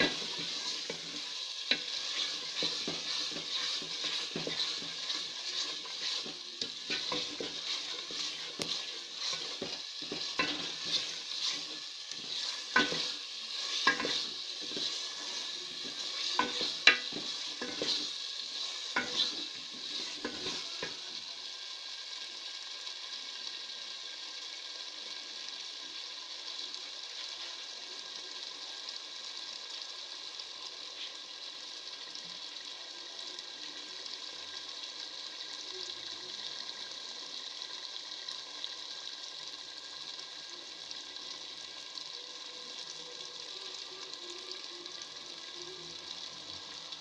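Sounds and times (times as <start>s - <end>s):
potatoes sizzling in oil: 0.0s - 47.0s.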